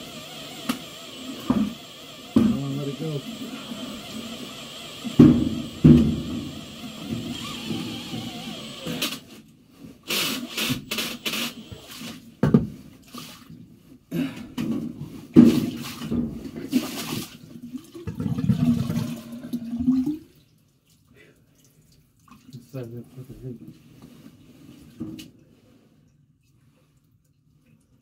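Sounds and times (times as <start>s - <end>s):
sewage water sloshing: 15.4s - 22.8s
water gurgling: 17.8s - 20.3s.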